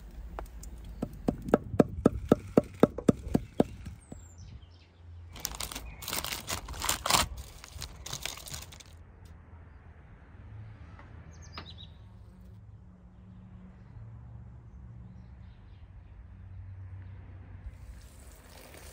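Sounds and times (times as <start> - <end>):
bird chirp: 0.3 - 6.2, 11.3 - 12.4
sharp knocks: 1.0 - 4.3.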